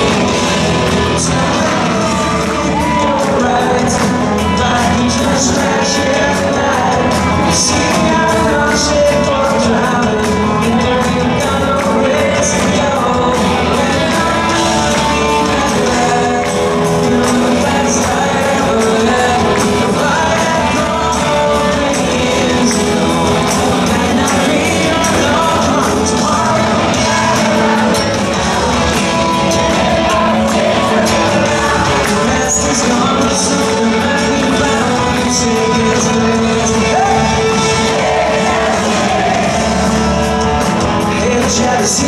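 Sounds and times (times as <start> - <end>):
man singing lead vocal: 0.0 - 42.0
rock band playing live: 0.0 - 42.0
tambourine shaken: 0.0 - 42.0.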